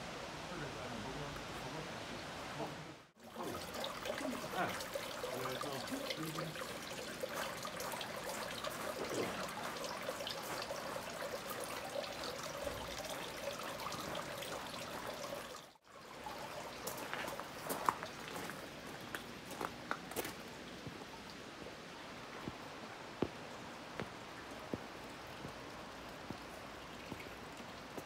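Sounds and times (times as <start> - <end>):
water splashing into stone basin: 3.2 - 20.9.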